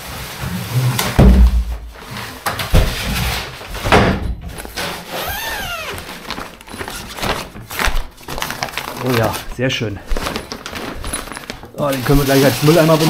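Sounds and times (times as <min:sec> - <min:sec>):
objects thumping down: 0:01.0 - 0:08.1
short squeak: 0:05.1 - 0:06.0.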